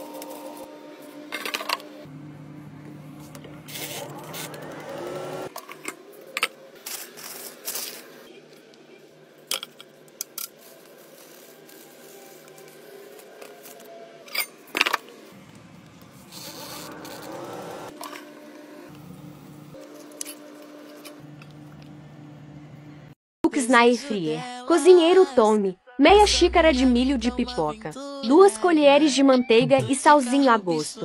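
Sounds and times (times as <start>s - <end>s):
air fryer fan humming: 1.7s - 5.5s, 15.4s - 23.1s.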